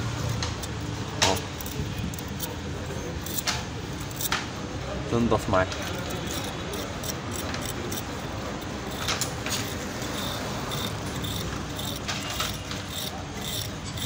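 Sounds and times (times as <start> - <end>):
wire brush scrubbing metal: 5.9 - 14.0.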